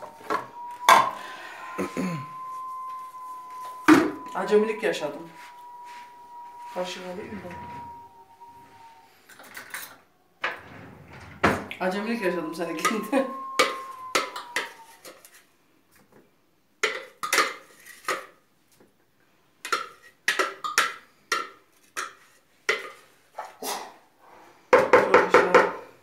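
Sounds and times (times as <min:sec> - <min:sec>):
glass bowl clinking: 0:00.0 - 0:09.0, 0:12.0 - 0:15.0.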